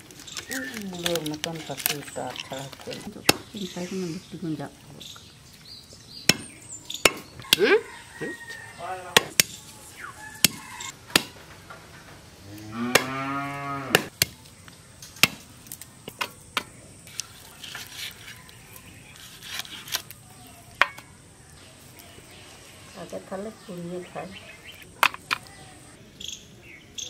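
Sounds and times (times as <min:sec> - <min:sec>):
blade chopping on wooden log: 0:06.3 - 0:07.3
cow mooing: 0:12.4 - 0:14.1.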